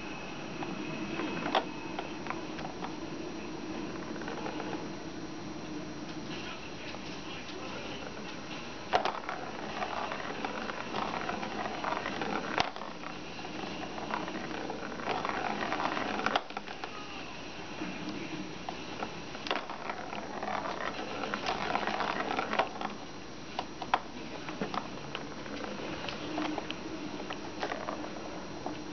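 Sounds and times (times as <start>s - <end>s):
ball rattling around plastic track: 3.8s - 4.9s, 6.9s - 17.1s, 18.6s - 28.4s.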